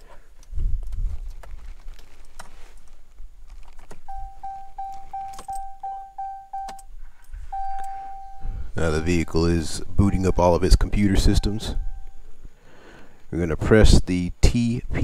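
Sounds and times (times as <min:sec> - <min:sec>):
keys jingling: 0:04.0 - 0:09.3
dashboard warning chime beeping: 0:04.1 - 0:06.9, 0:07.5 - 0:12.3.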